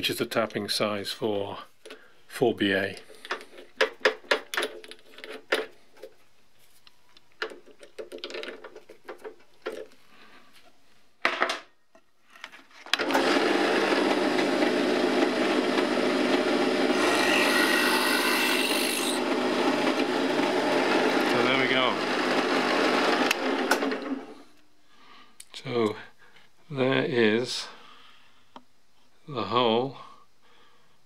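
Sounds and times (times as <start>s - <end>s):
drill press motor running: 13.0s - 24.3s
drill bit cutting brass: 13.2s - 23.4s.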